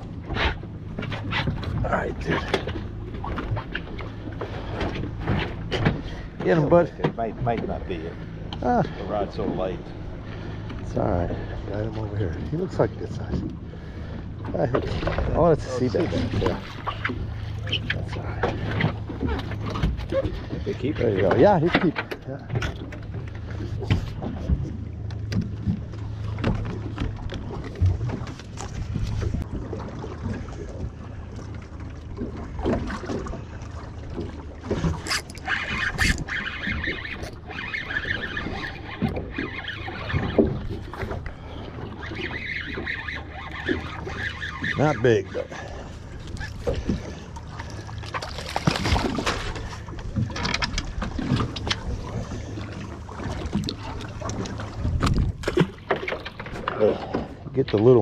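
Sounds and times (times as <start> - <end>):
water splashing from thrashing fish: 23.8 - 58.0.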